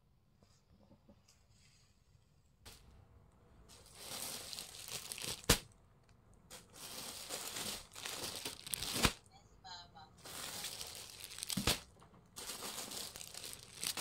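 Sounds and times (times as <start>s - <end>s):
plastic bags crinkling: 3.7s - 9.3s, 10.1s - 14.0s.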